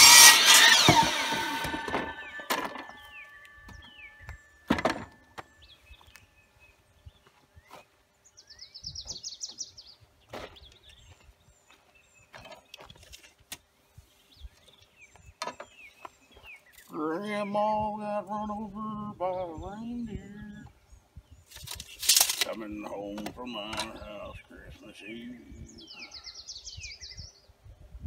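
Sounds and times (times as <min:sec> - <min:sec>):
wooden timber thumping down: 0:00.0 - 0:03.0, 0:04.7 - 0:05.2
birds chirping and singing: 0:00.0 - 0:28.0
bird trill: 0:00.1 - 0:07.1.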